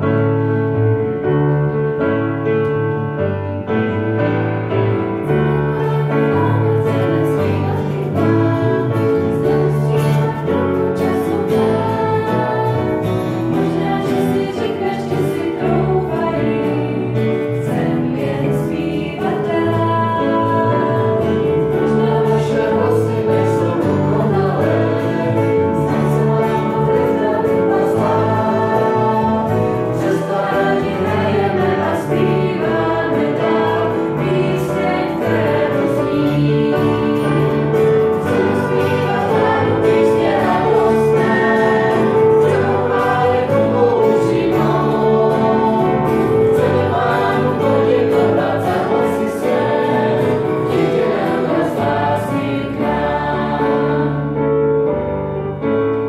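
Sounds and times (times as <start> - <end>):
digital piano: 0.0 - 56.0
group of people singing: 3.6 - 55.0.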